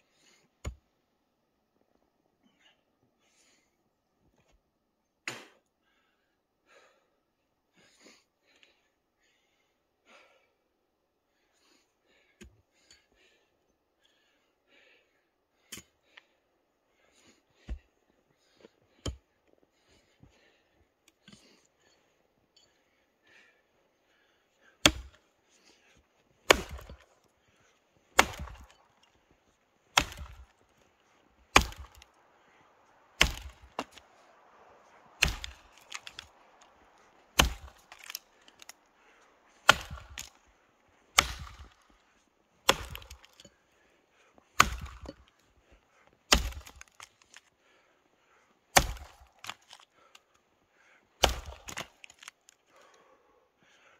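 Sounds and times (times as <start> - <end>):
axe chopping into log: 24.8 - 25.2, 26.4 - 27.2, 28.1 - 29.0, 29.9 - 30.6, 31.5 - 32.1, 33.2 - 34.2, 35.2 - 36.4, 37.3 - 38.8, 39.6 - 40.4, 41.1 - 41.8, 42.6 - 43.4, 44.6 - 45.2, 46.3 - 47.4, 48.7 - 49.8, 51.2 - 52.3.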